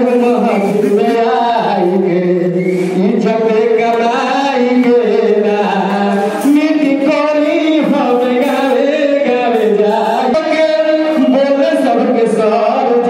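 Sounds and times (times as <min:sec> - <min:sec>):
man singing into microphone: 0:00.0 - 0:13.0.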